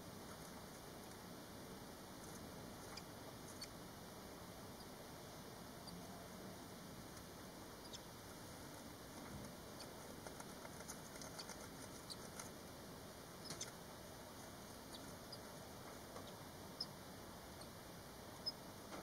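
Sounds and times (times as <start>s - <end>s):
nestlings squeaking: 2.7s - 3.8s, 7.8s - 8.2s, 9.1s - 18.6s.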